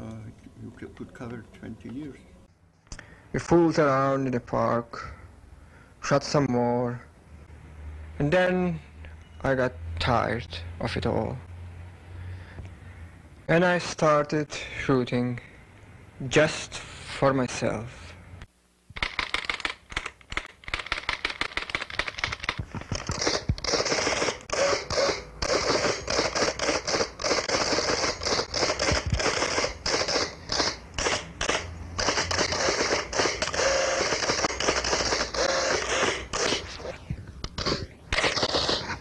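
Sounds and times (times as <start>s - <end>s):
dense crackling and clicking: 19.0s - 24.5s.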